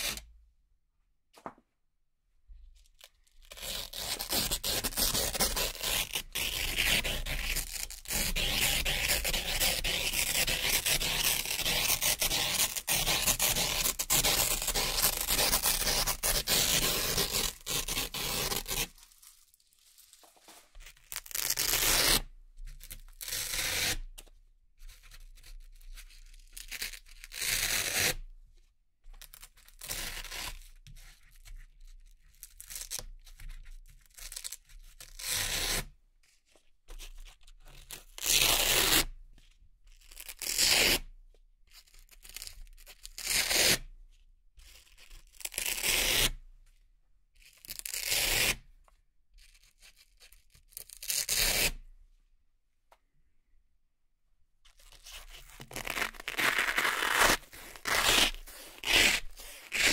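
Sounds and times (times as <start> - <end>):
velcro ripping: 3.4 - 20.3, 21.0 - 22.2, 54.8 - 59.9.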